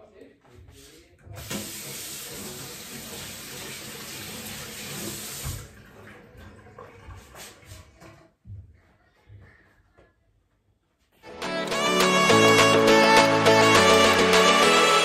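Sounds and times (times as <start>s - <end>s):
tap running into sink: 1.3s - 7.5s.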